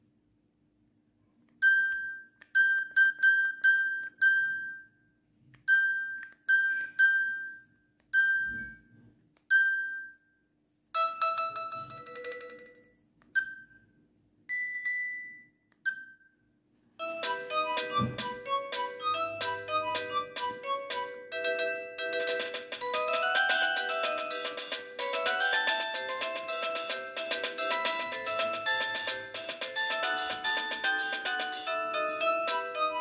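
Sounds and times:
multi-note phone tone: 17.0s - 33.0s.

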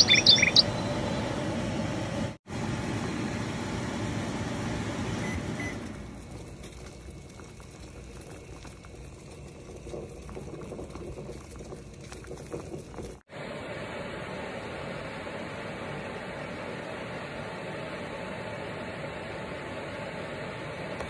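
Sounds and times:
water boiling with crackling pops: 5.8s - 13.3s.

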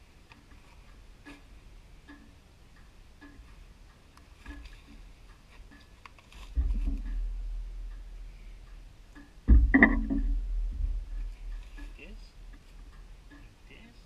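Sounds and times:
low rumble: 6.6s - 13.3s
loud low thump at microphone: 9.5s - 11.6s.

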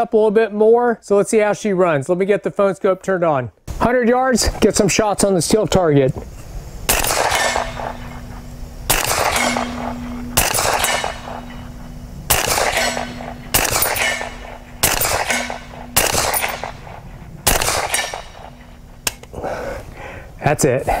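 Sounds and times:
suppressed gunshots with echo: 6.8s - 19.2s
steel target ringing: 6.9s - 19.2s.

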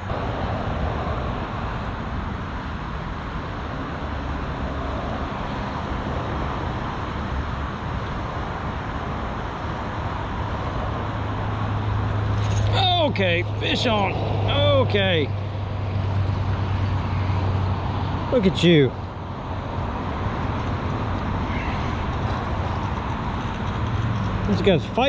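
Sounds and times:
highway traffic hiss and hum: 0.0s - 25.0s.

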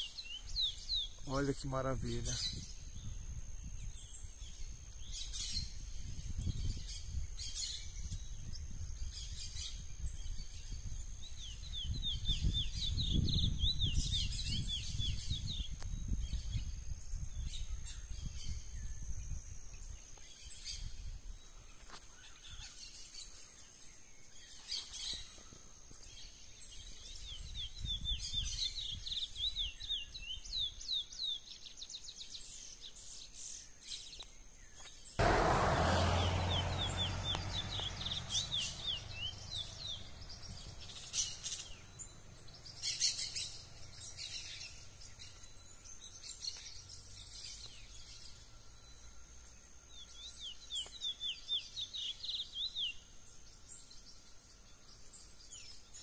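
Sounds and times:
finch singing high chirps: 3.8s - 18.7s, 36.2s - 49.0s, 49.9s - 53.0s.

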